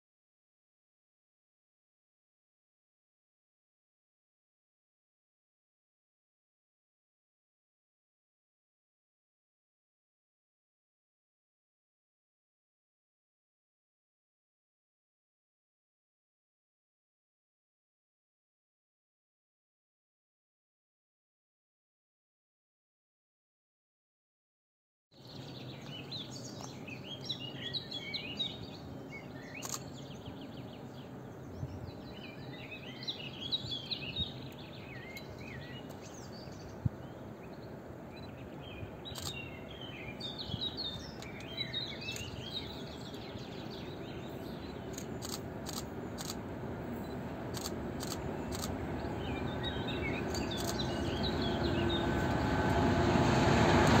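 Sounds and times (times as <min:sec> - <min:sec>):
small birds singing: 0:25.2 - 0:52.8
diesel freight train rumble: 0:42.6 - 0:54.0.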